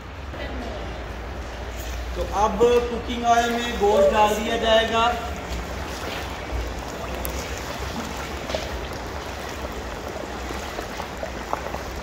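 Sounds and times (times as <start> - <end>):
hot oil sizzling: 6.3 - 12.0.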